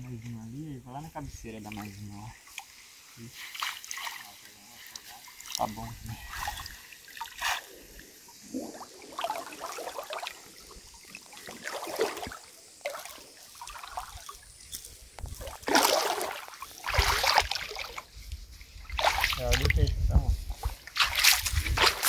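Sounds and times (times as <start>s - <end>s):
water sloshing around legs: 1.5s - 20.0s, 20.6s - 22.0s
water splash: 8.5s - 14.4s, 15.2s - 18.1s, 18.8s - 19.9s, 20.8s - 22.0s.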